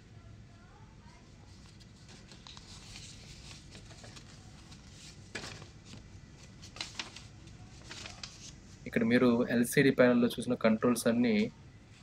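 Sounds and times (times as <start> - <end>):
paper crinkles: 1.5 - 8.8
paper rustling: 1.5 - 8.8.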